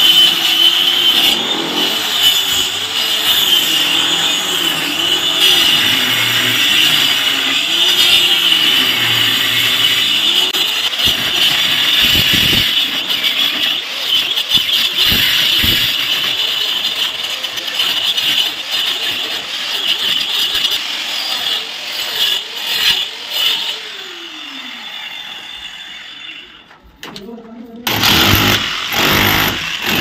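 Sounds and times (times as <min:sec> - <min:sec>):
angle grinder cutting brick: 0:00.0 - 0:26.6, 0:27.8 - 0:30.0.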